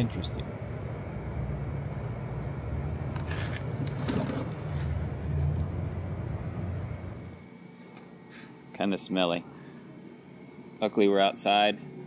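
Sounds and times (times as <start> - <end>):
low engine rumble: 0.0 - 7.5.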